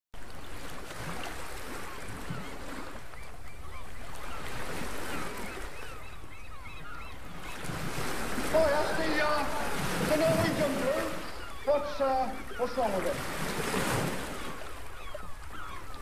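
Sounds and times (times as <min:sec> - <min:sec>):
wind: 0:00.2 - 0:16.0
flock of birds calling: 0:01.8 - 0:16.0
surf: 0:03.9 - 0:16.0.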